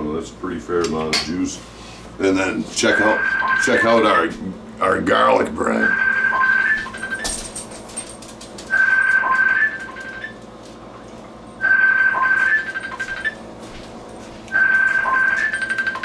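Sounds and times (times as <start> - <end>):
mobile phone ringtone: 2.9 - 4.0, 5.8 - 7.3, 8.7 - 10.4, 11.6 - 13.4, 14.5 - 16.0.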